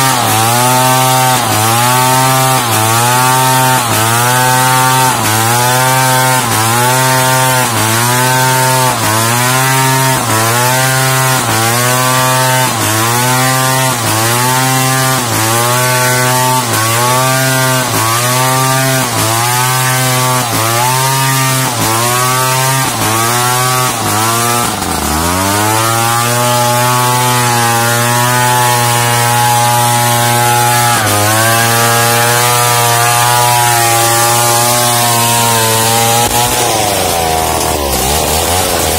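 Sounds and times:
chainsaw cutting timber: 0.0 - 38.9.

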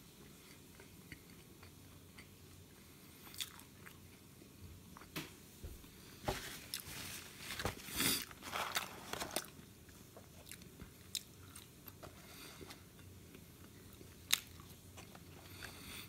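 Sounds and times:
person chewing: 0.2 - 4.2, 9.3 - 12.0, 13.2 - 16.0.

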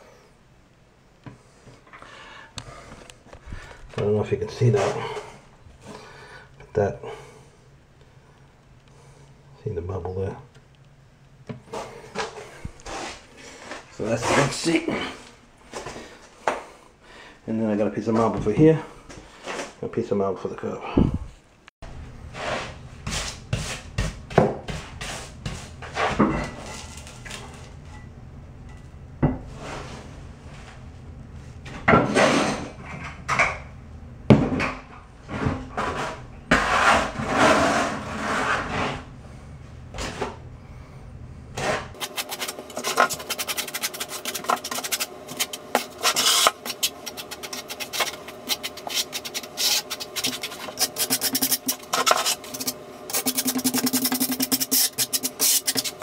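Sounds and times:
trowel scraping mortar: 35.8 - 39.0, 41.6 - 56.0.

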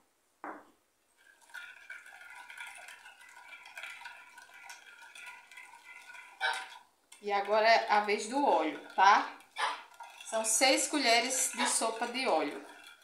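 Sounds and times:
metal spoon stirring batter: 1.2 - 13.0
spoon scraping glass bowl: 1.2 - 13.0.

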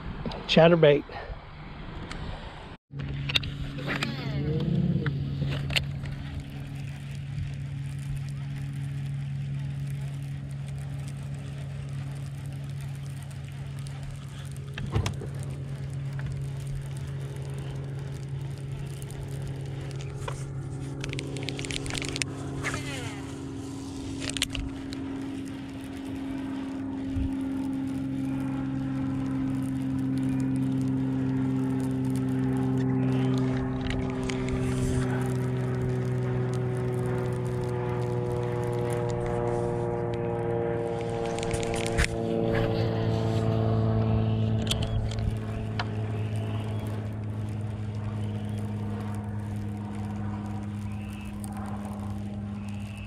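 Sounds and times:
electric trolling motor humming: 2.9 - 53.0
sharp clicks: 12.0 - 23.2, 44.0 - 53.0.

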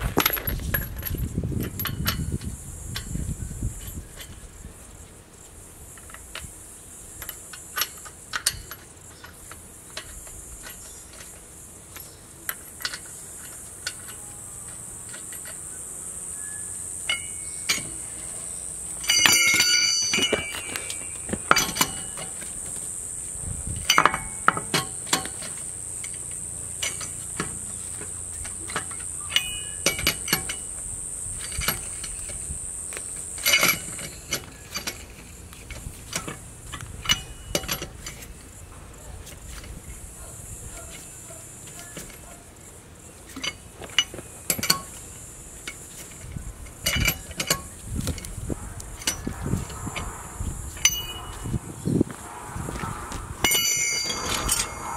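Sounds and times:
lug wrench clinking on wheel nuts: 0.1 - 4.5, 5.9 - 15.7, 16.3 - 22.8, 23.7 - 42.3, 43.2 - 48.4, 49.0 - 51.6
high insect drone: 1.1 - 54.9
ringing metal clatter: 17.1 - 18.2, 19.0 - 22.6, 28.6 - 30.8, 33.3 - 35.4, 36.1 - 38.2, 45.6 - 48.3, 49.0 - 54.9.

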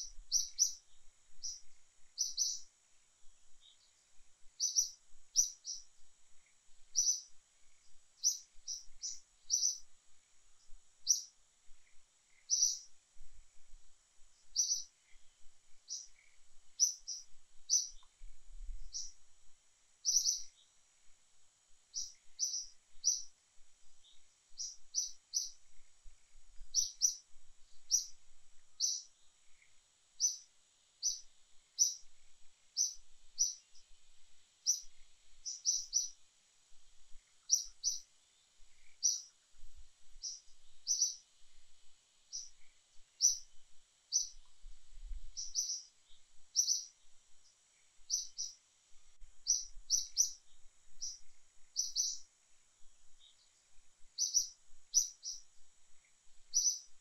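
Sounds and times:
bird chirping: 0.0 - 2.7, 3.5 - 9.9, 10.6 - 13.0, 14.4 - 18.2, 18.8 - 19.2, 20.0 - 20.8, 21.9 - 23.4, 24.0 - 34.0, 34.6 - 36.2, 37.1 - 39.4, 40.2 - 41.3, 42.2 - 44.6, 45.3 - 48.6, 49.4 - 52.3, 53.1 - 57.0
faint high hiss: 0.0 - 57.0.

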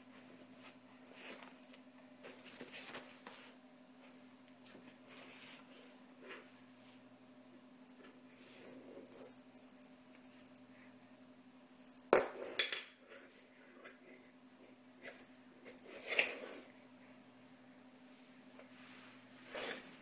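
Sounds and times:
baby rattle shaking: 8.4 - 10.6.

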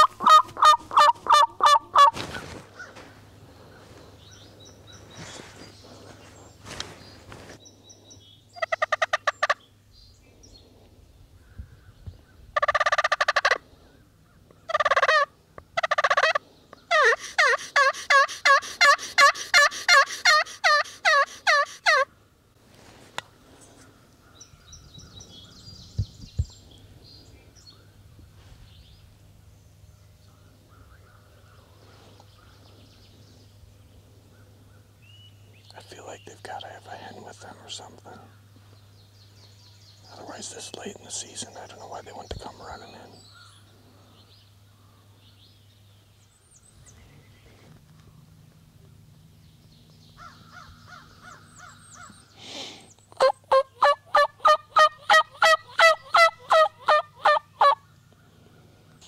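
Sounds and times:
turkey yelps: 0.0 - 3.0, 12.6 - 13.6, 14.7 - 22.1, 53.2 - 57.8
turkeys gobbling: 0.0 - 3.0, 8.6 - 9.6, 12.6 - 13.6, 14.7 - 22.1, 53.1 - 57.8
faint songbird chirps: 2.4 - 12.6, 23.3 - 53.2.

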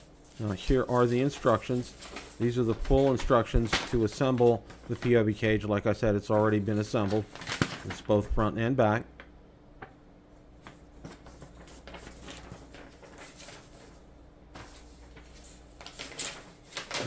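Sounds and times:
paper crinkles: 0.1 - 5.2, 6.3 - 8.4, 10.6 - 17.0
paper rustling and tapping: 0.3 - 5.2, 6.3 - 8.2, 9.2 - 10.0, 10.6 - 17.0.

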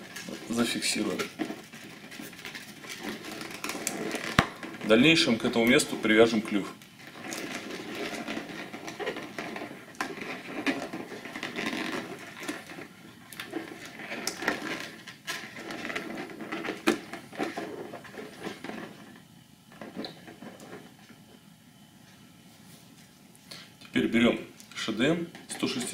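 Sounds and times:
rubbing of balloon rubber: 0.0 - 19.2.

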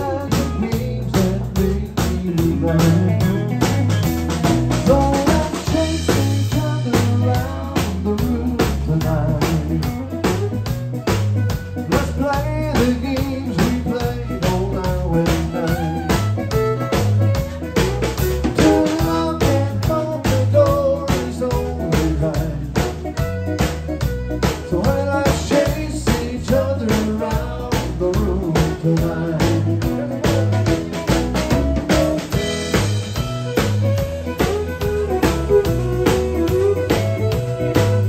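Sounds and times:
drum kit beat: 0.0 - 38.0
walking electric bass line: 0.0 - 38.0
fiddle bowing a melody: 9.9 - 27.6, 29.2 - 38.0.

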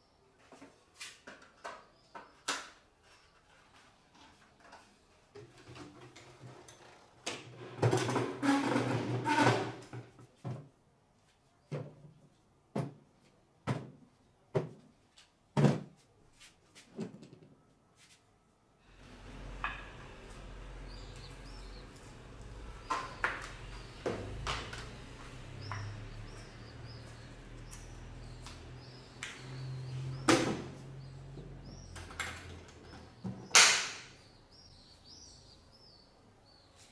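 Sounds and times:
faint birds chirping: 0.0 - 7.8, 16.1 - 36.9.

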